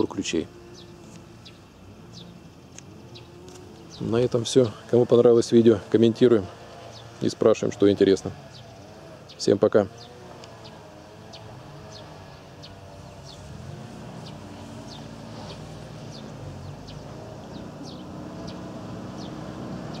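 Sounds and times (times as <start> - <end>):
motorcycle engine idling: 0.0 - 20.0
high bird chirps: 8.4 - 20.0.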